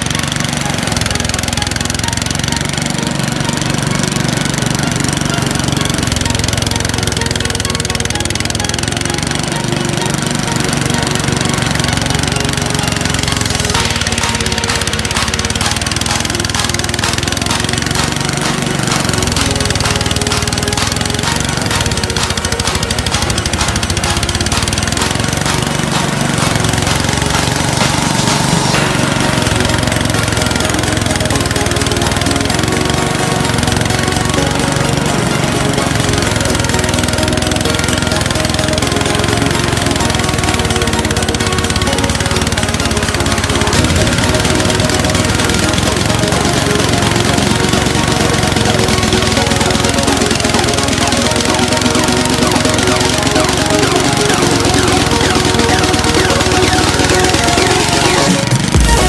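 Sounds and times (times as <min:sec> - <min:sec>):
thresher engine running: 0:00.0 - 0:59.0.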